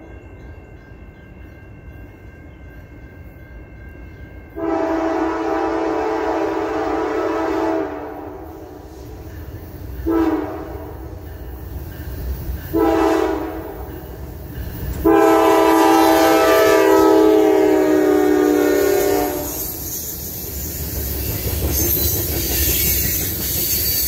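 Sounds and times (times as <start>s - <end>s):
low rumble of locomotive: 0.0s - 24.0s
locomotive air horn blasts: 4.6s - 8.6s, 10.0s - 10.9s, 12.8s - 13.6s, 15.0s - 19.7s.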